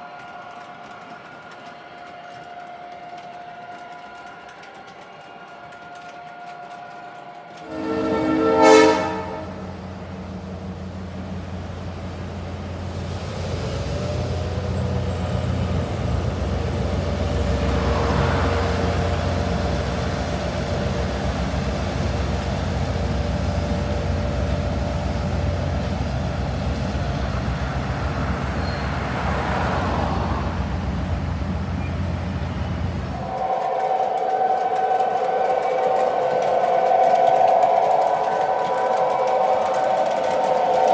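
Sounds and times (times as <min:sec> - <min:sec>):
locomotive engine rumbling: 0:07.6 - 0:40.9
truck passing: 0:07.8 - 0:33.4
car passing: 0:27.4 - 0:34.1.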